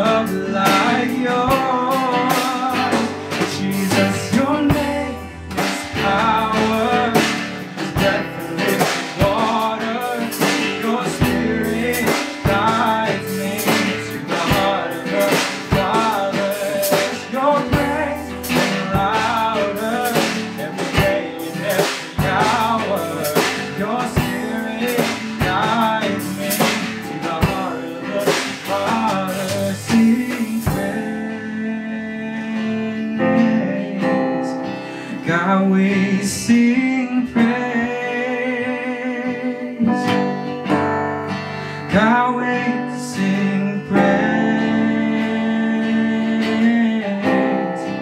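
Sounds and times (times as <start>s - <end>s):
drum kit: 0.0s - 38.2s, 39.9s - 48.0s
man singing: 0.0s - 41.0s, 41.7s - 48.0s
worship band playing: 0.0s - 48.0s.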